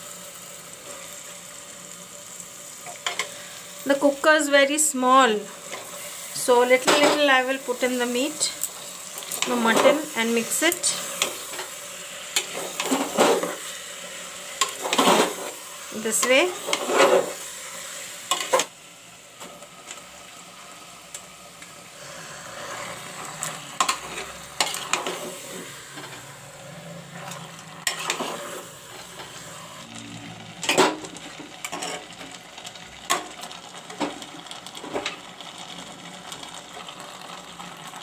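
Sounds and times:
frying sizzle: 0.0s - 38.0s
metal spoon scraping a pot: 22.6s - 26.2s, 27.2s - 28.7s, 31.6s - 32.1s.

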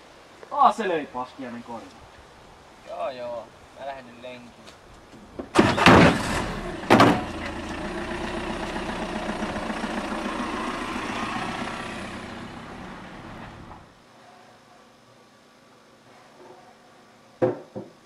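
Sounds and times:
car driving off: 5.5s - 14.0s
car engine bursts: 5.5s - 14.0s.

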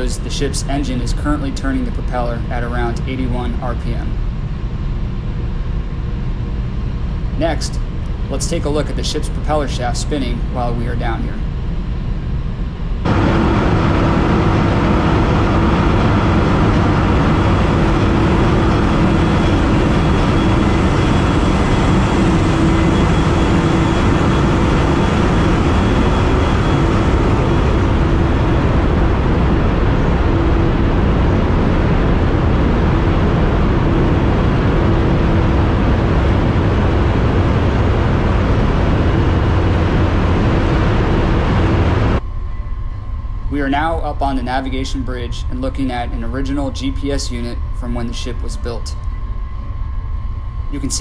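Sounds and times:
diesel engine room machinery: 0.0s - 51.0s.

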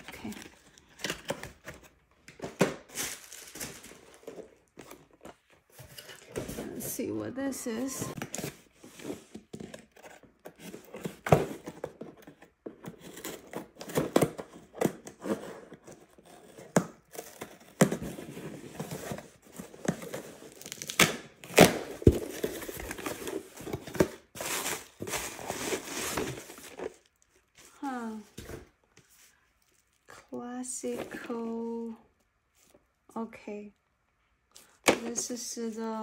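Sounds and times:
cardboard box tearing: 12.9s - 27.0s.

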